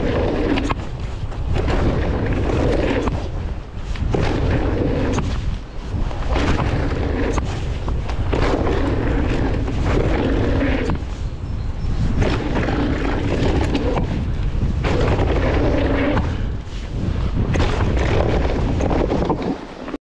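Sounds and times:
bike clicks and rattles: 0.0 - 11.3, 12.0 - 20.0
tyres on dirt: 0.0 - 20.0
wind buffeting microphone: 0.0 - 20.0.

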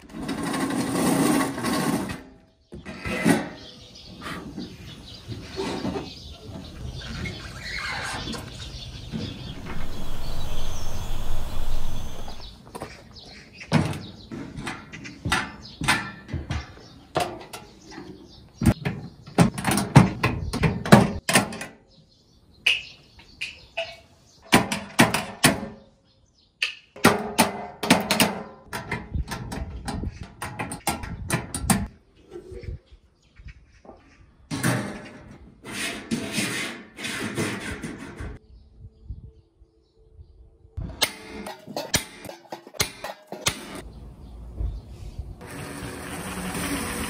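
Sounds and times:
metal pans clanking: 41.0 - 43.8.

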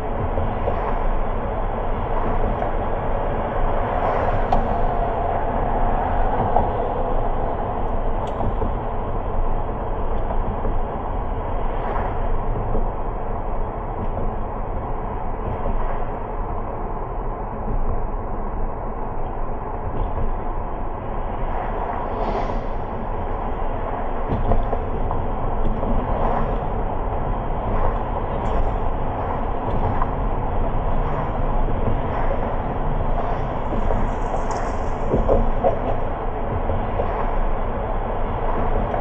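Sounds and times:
car road noise: 20.9 - 39.0.

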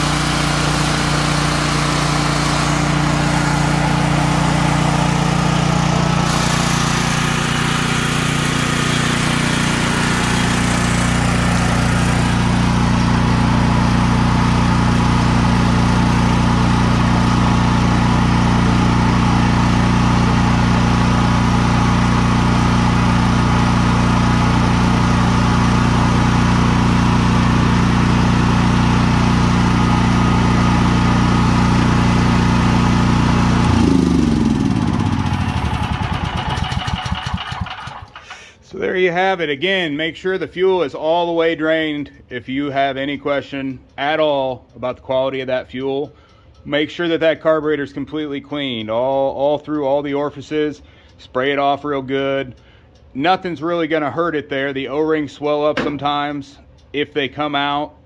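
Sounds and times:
engine winding down: 0.0 - 38.6
generator engine running: 0.0 - 38.7, 53.8 - 58.0.

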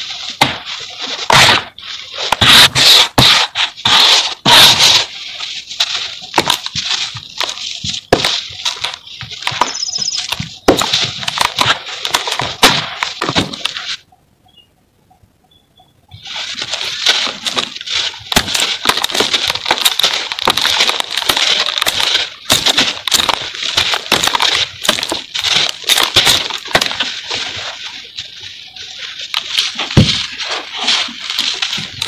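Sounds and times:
cement block crumbling: 16.7 - 27.2.

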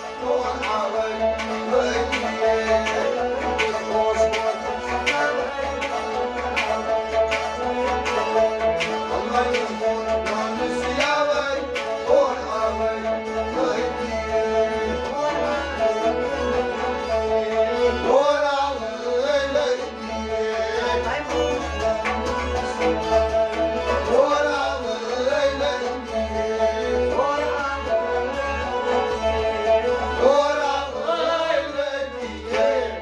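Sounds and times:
person singing: 0.0 - 23.0, 29.9 - 33.0
harmonium chords: 0.0 - 33.0
string instruments melody: 0.0 - 33.0.

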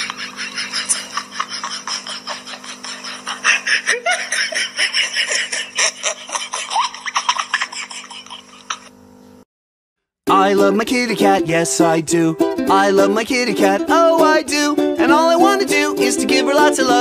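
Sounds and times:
person laughing breathily: 0.0 - 8.7.

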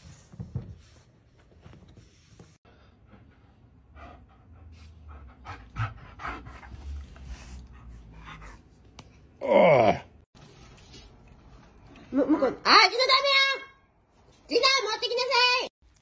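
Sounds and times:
dog panting: 3.1 - 8.7.

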